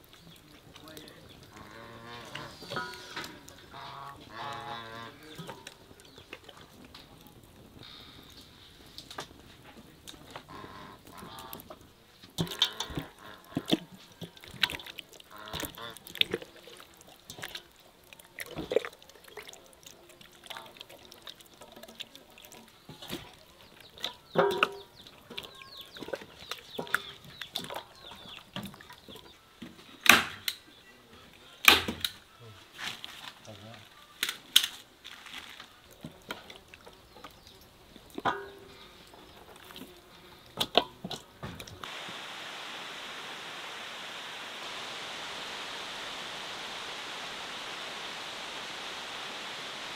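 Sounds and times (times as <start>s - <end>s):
hands kneading wet marinade: 9.4s - 30.0s.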